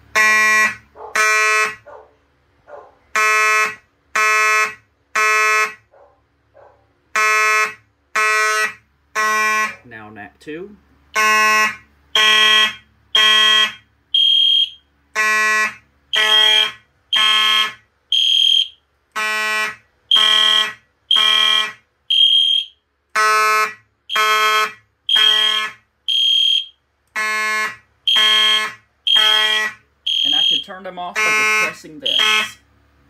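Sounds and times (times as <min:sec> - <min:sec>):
buzzy fire alarm horn blasts: 0:00.0 - 0:01.9, 0:03.1 - 0:05.9, 0:07.1 - 0:09.9, 0:11.1 - 0:32.7
high electronic alarm tone: 0:07.2 - 0:09.8, 0:11.2 - 0:32.6.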